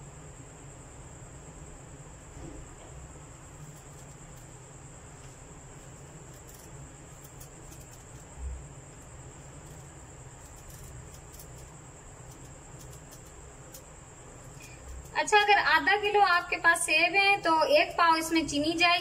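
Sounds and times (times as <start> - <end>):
steady high-pitched whine: 0.0 - 19.0
knife scraping apple peel: 3.5 - 4.6, 5.8 - 19.0.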